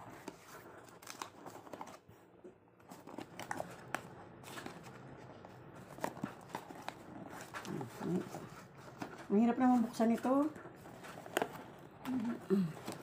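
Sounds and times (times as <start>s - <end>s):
cardboard box rustling and scraping: 4.4s - 13.0s.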